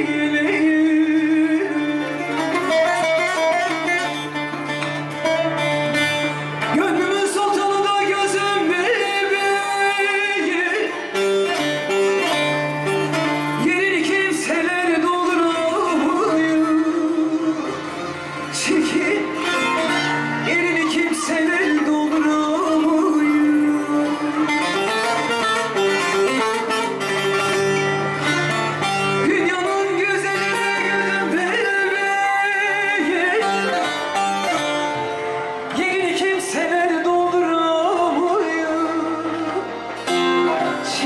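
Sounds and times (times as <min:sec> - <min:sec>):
instrumental accompaniment: 0:00.0 - 0:41.0
woman singing into microphone: 0:20.4 - 0:24.6, 0:35.7 - 0:39.7.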